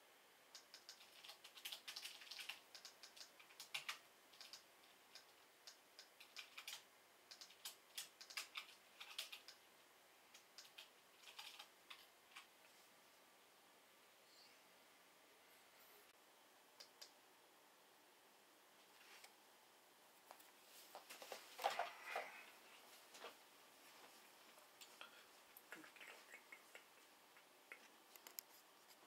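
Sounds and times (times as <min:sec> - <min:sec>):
typing on computer keyboard: 0:00.5 - 0:09.6, 0:10.3 - 0:12.5.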